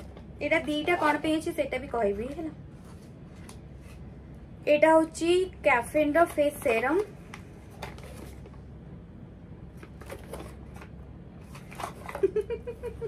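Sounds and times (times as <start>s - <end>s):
cardboard packaging rustling: 6.3s - 8.6s, 9.7s - 12.5s.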